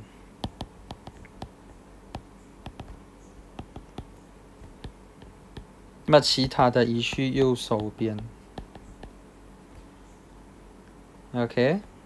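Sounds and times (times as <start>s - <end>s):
faint low hum: 0.0s - 12.0s
stylus tapping on glass screen: 0.4s - 5.7s, 6.4s - 9.2s.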